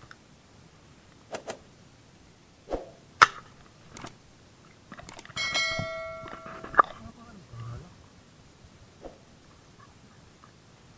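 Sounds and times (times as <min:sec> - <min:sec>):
sharp crack: 0:02.6 - 0:04.2
gun clicks: 0:03.2 - 0:04.2, 0:04.9 - 0:05.4.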